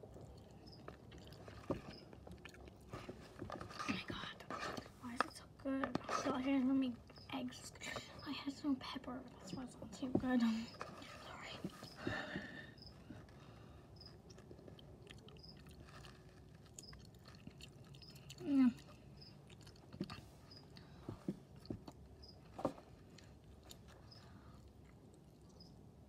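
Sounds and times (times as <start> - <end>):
person chewing food: 0.0 - 3.8, 12.8 - 25.8.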